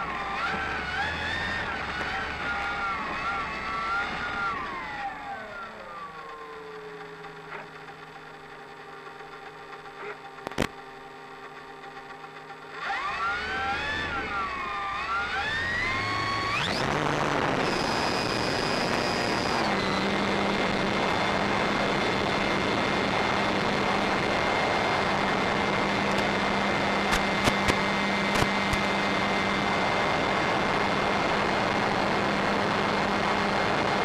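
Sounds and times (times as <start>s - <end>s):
electric motor and propeller whining: 0.0s - 34.0s
sharp click: 27.1s - 28.9s.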